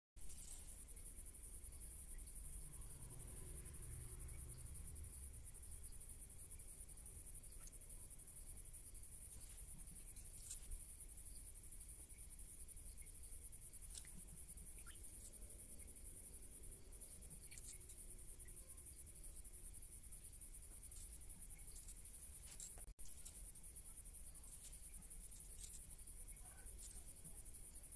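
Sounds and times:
crickets chirring: 0.2 - 27.9.

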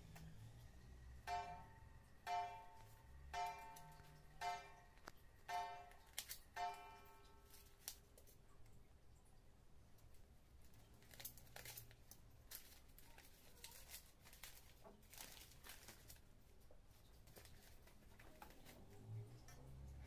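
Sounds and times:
newspaper crinkling and rustling: 10.6 - 19.2.

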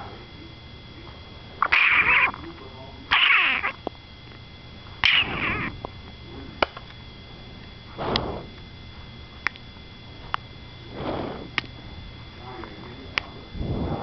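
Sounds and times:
faint high whine: 0.0 - 14.0
hissy bursts: 5.0 - 5.8, 7.9 - 8.6, 10.8 - 11.7.

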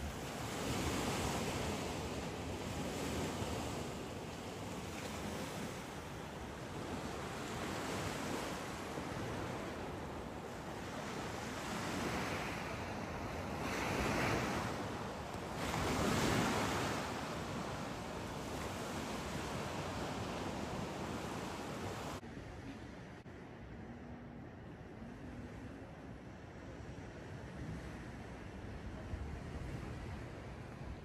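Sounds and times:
sea waves breaking: 0.0 - 22.6
wind on microphone: 0.0 - 31.0.

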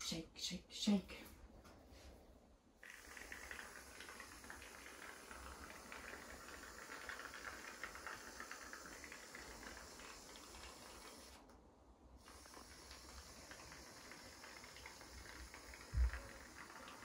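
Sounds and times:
aerosol foam spraying hiss: 2.8 - 11.4, 12.2 - 17.0.

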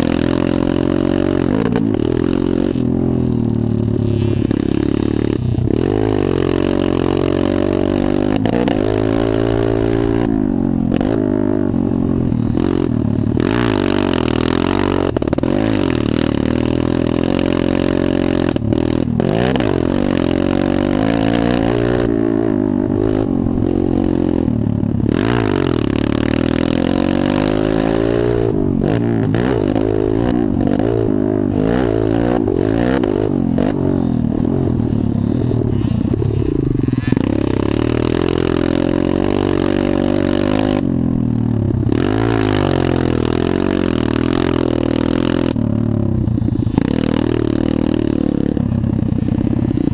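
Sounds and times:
dirt bike engine revving: 0.0 - 49.9.

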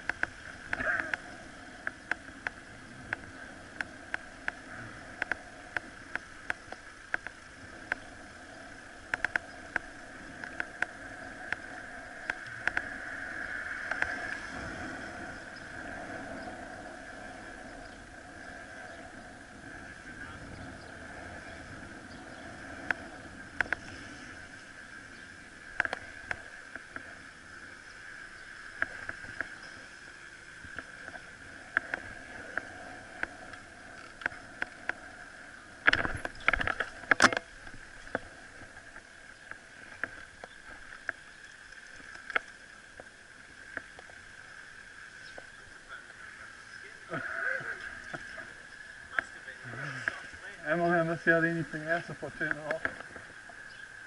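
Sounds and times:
bike clicks and knocks: 0.0 - 0.9, 35.8 - 38.3
bicycle riding hum: 0.0 - 54.0.

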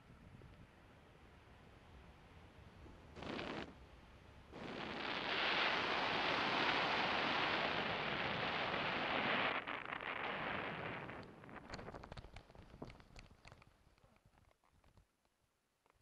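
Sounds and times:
wind rushing over microphone: 4.5 - 12.9.

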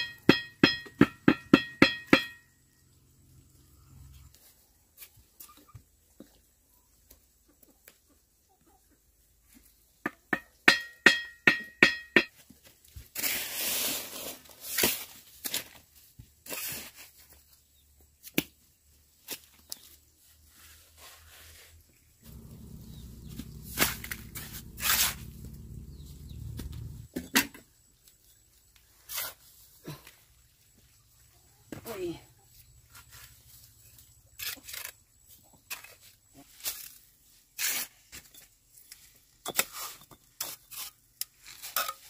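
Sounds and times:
trowel scraping mortar: 13.2 - 15.1, 20.6 - 27.0, 28.9 - 29.6, 34.3 - 38.5, 39.4 - 42.0.

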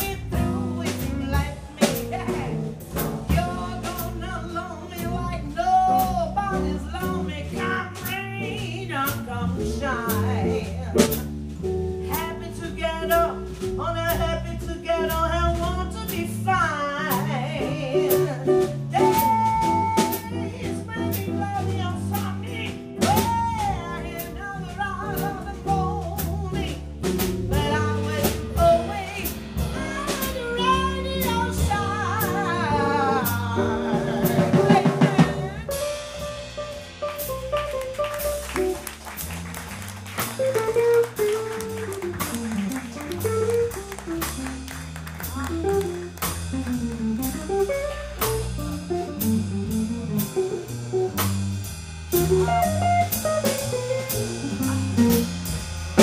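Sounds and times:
woman singing: 0.0 - 11.3, 12.0 - 26.8, 27.5 - 36.3
double bass: 0.0 - 56.0
drum kit with rimshots: 0.0 - 56.0.

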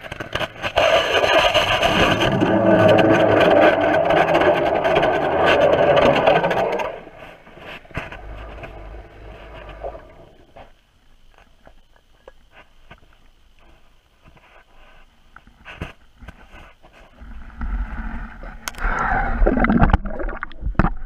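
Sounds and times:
ice auger running underwater: 0.0 - 10.6
faint clicks and knocks: 7.2 - 18.9.

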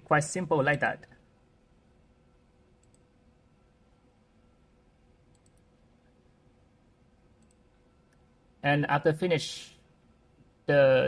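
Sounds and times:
faint room hum: 0.0 - 11.0
computer mouse clicks: 2.8 - 3.1, 5.3 - 5.9, 7.4 - 8.3.

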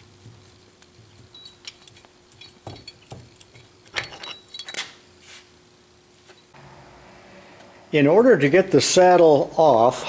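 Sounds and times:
metallic clicks and clinks: 1.1 - 5.0.

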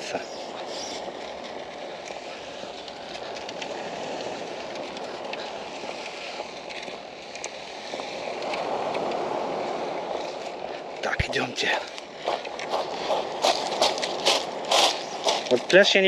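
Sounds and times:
waves washing onto pebbles: 0.0 - 16.0.

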